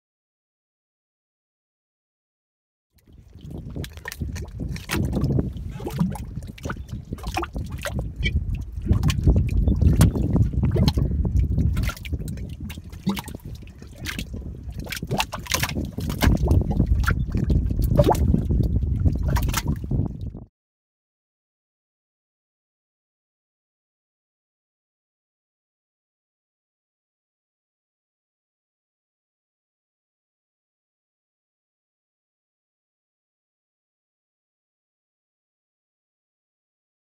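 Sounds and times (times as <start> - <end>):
mud pot bubbling: 3.0 - 20.5.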